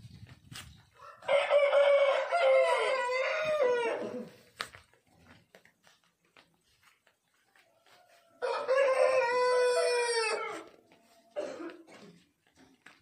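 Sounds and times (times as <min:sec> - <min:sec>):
rooster crowing: 0:01.0 - 0:04.3, 0:08.4 - 0:10.8.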